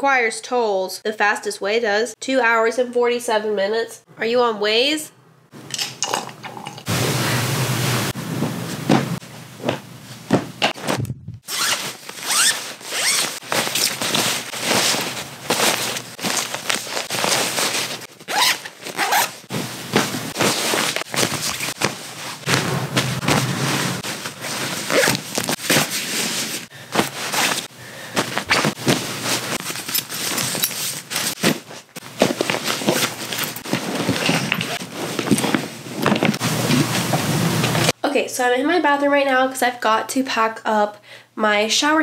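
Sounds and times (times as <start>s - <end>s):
nylon fabric rustling: 8.1s - 38.0s
zippers being pulled: 10.8s - 22.6s, 23.2s - 37.0s.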